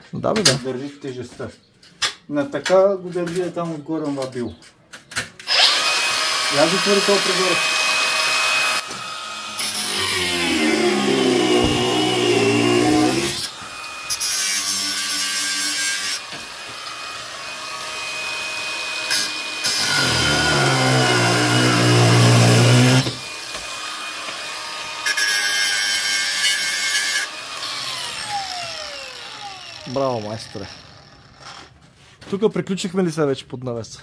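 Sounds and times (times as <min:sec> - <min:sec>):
angle grinder cutting steel rod: 0:05.5 - 0:31.8.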